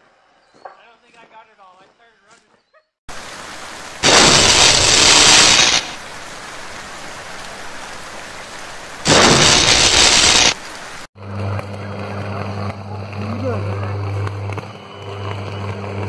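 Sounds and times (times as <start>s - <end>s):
rain hissing: 3.1s - 11.1s
electrical arcing sizzling hiss: 3.9s - 6.4s, 9.0s - 11.1s.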